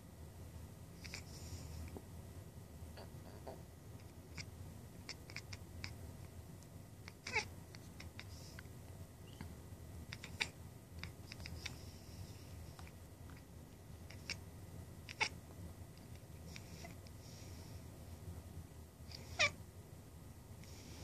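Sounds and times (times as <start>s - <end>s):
low steady hum: 0.0s - 21.0s
cat chattering and chirping: 1.0s - 1.9s, 3.0s - 6.2s, 6.9s - 15.4s, 16.0s - 17.7s, 19.0s - 19.6s.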